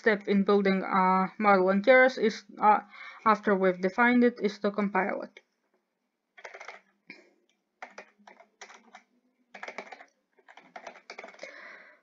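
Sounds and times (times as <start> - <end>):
keyboard keystroke clicks: 6.4 - 6.8, 7.8 - 9.0, 9.6 - 11.4.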